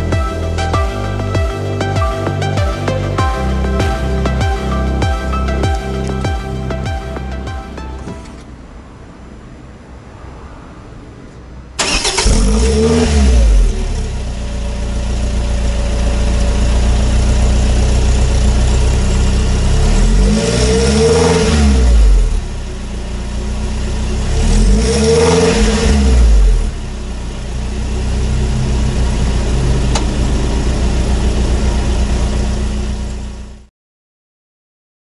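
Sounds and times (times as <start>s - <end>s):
car engine idling and revving: 0.0s - 33.7s.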